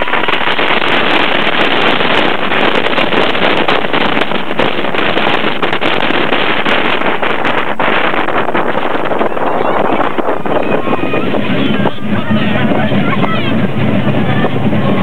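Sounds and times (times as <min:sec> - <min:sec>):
roller coaster rattling on track: 0:00.0 - 0:15.0
wind roaring over microphone: 0:00.0 - 0:15.0.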